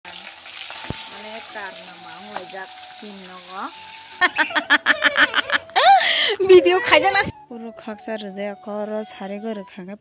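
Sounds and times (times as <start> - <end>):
fish sizzling in oil: 0.0 - 5.4
child talking and giggling: 4.2 - 7.2.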